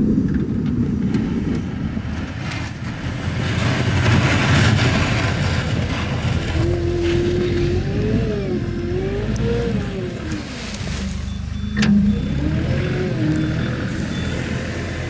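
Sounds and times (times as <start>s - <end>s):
diesel engine and hydraulics whine: 0.0s - 15.0s
reversing beeper short beeps: 10.2s - 15.0s.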